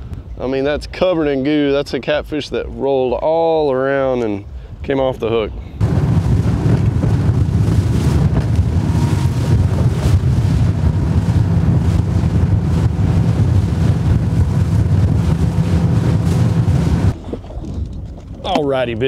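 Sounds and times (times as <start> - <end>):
wind buffeting microphone: 4.7 - 19.0
rushing water: 5.8 - 17.3.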